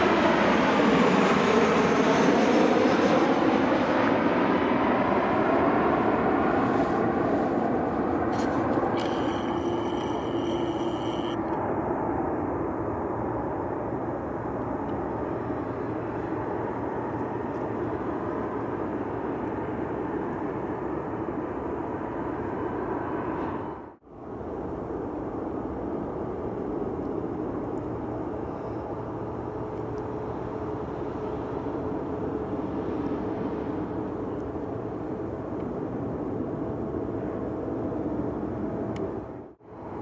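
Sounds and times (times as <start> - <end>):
jet engine roar: 0.0 - 40.0
high steady whine: 6.7 - 12.7.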